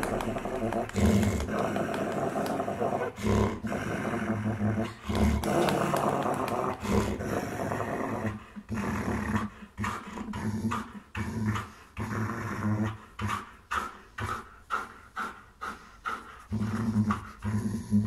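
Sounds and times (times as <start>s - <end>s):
dog play-growling: 0.0s - 13.5s.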